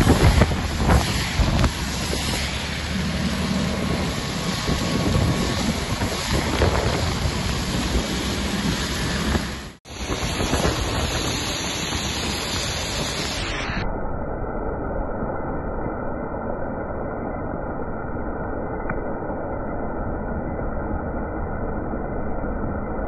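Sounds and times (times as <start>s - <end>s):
wind and spray on microphone: 0.0s - 13.8s.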